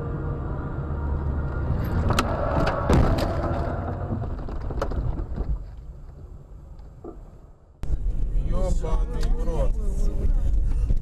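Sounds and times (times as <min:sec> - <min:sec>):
loud road noise: 0:00.0 - 0:05.5
car crash impacts: 0:01.9 - 0:05.6.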